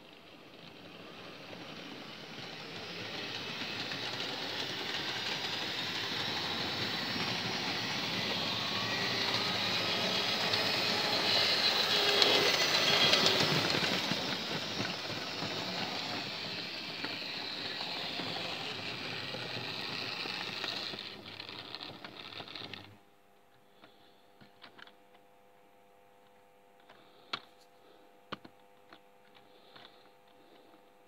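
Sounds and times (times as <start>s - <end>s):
model train whirring on track: 0.0s - 23.0s.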